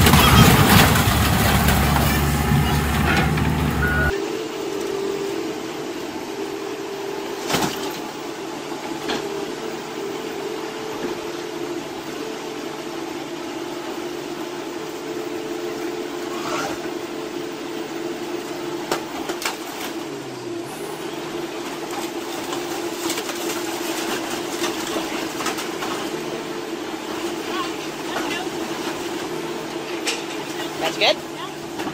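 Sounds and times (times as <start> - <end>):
glass breaking: 0.0 - 2.8.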